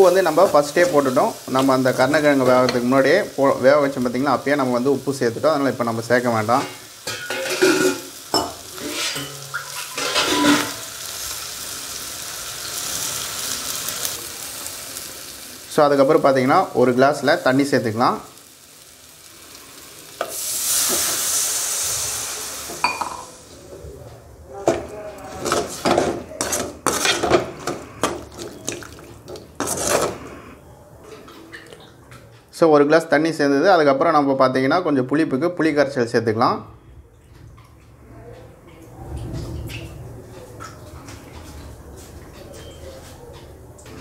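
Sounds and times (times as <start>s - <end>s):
food sizzling in oil: 0.0s - 23.6s, 24.6s - 30.3s
metal ladle scraping pan: 6.5s - 11.1s, 24.6s - 30.5s.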